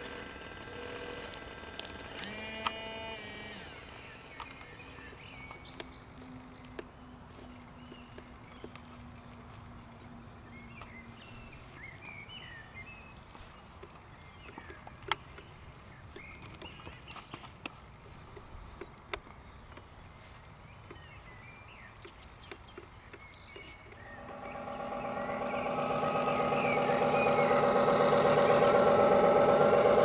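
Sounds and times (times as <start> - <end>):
small birds chirping: 2.2 - 30.0
faint steady hum: 23.9 - 30.0.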